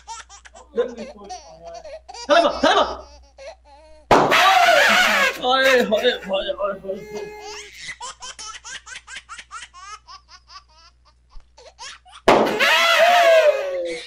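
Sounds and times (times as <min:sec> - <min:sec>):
loud drawn-out cry: 0:04.3 - 0:05.4, 0:12.4 - 0:14.0
person laughing hard: 0:04.4 - 0:06.4, 0:12.5 - 0:14.0.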